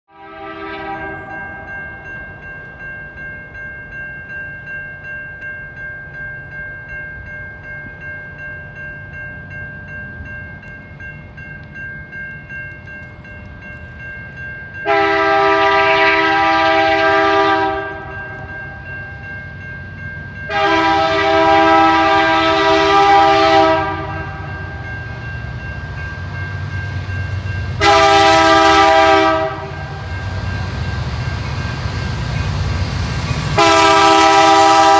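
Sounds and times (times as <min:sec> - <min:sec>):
locomotive air horn blasts: 0:00.1 - 0:01.4, 0:14.8 - 0:18.1, 0:20.5 - 0:24.5, 0:27.8 - 0:30.0, 0:33.6 - 0:34.9
train rumble: 0:00.2 - 0:34.9
bell ringing: 0:00.9 - 0:15.6, 0:17.8 - 0:21.1, 0:29.2 - 0:32.5.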